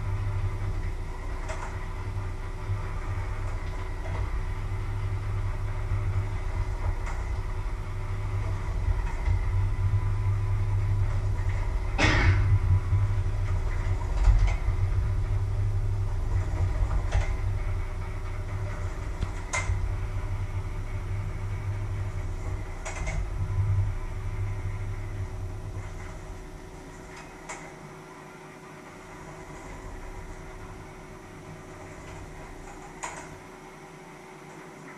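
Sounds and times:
low rumble: 0:00.0 - 0:27.4.

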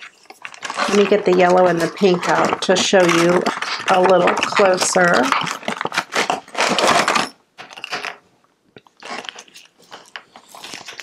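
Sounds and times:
plastic bag crinkling: 0:00.0 - 0:11.0
plastic jars clicking together: 0:00.6 - 0:08.2.

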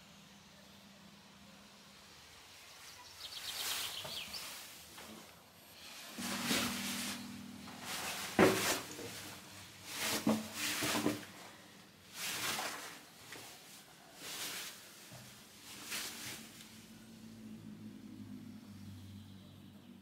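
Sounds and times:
rustling scrapes: 0:03.5 - 0:16.9.

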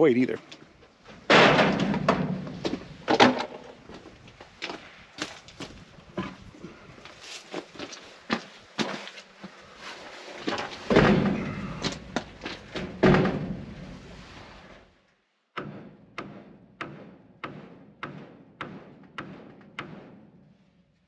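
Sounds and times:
hammer driving nails into wood: 0:15.6 - 0:20.2.

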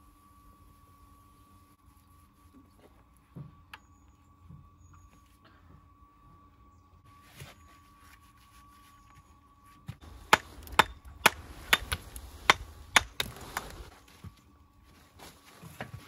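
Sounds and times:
hammer striking stone: 0:10.3 - 0:13.3.

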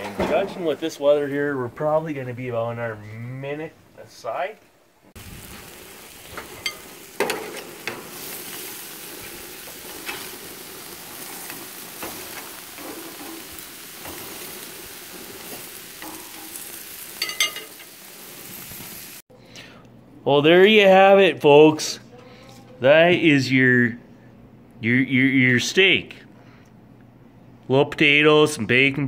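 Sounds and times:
steaks sizzling on a grill: 0:05.2 - 0:19.2.

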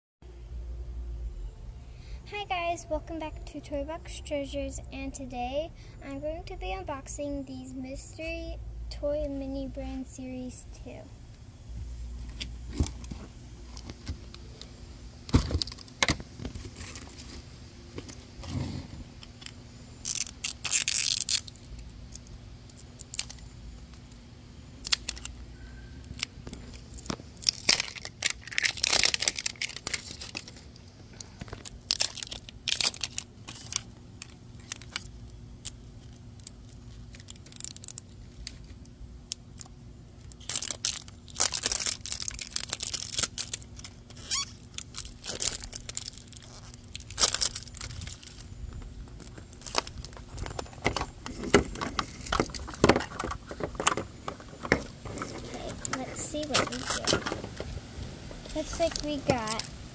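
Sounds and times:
plastic seal strips tearing: 0:20.0 - 0:23.4, 0:24.8 - 0:25.4, 0:26.1 - 0:30.6, 0:31.4 - 0:48.5, 0:55.3 - 0:57.2.

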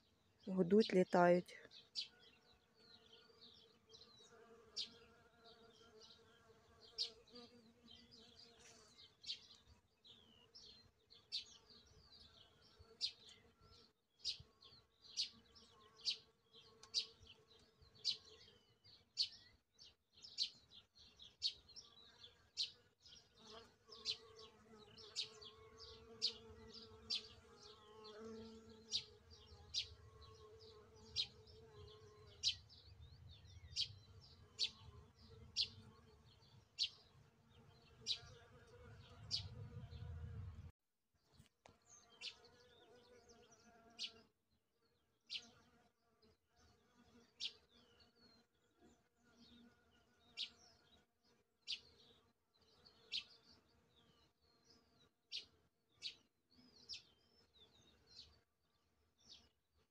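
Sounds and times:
bees buzzing faintly: 0:00.6 - 0:19.6, 0:20.2 - 0:40.7
bird chirping: 0:09.0 - 0:40.7.

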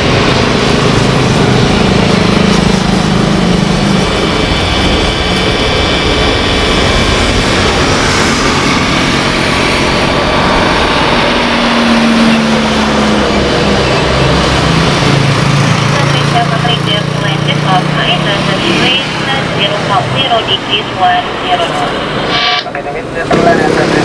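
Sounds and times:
jet engines at takeoff: 0:00.0 - 0:24.0
faint high whine: 0:18.2 - 0:24.0.

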